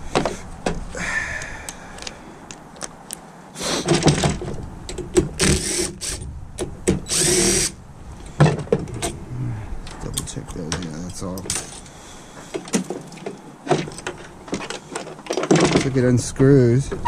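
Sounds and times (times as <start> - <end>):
tools and metal parts clattering: 3.8 - 5.0, 9.9 - 11.9, 12.5 - 16.2.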